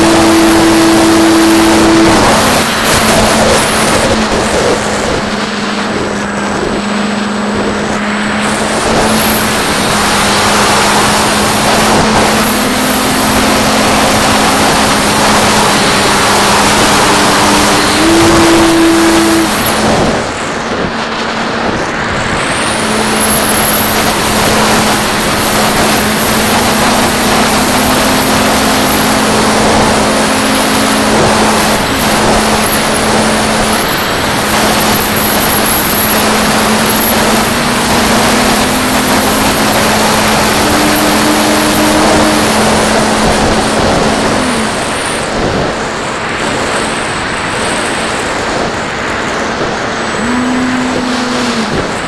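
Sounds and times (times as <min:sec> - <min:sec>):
electric motor and propeller humming: 0:00.0 - 0:52.0
wind rushing over airframe: 0:00.0 - 0:52.0.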